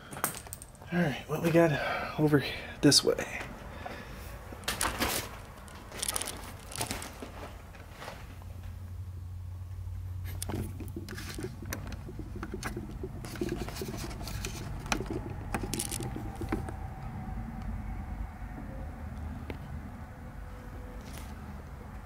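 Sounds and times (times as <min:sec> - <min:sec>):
handling clicks and scrapes: 0:04.6 - 0:08.4, 0:10.2 - 0:16.8
low rumble: 0:11.8 - 0:21.0.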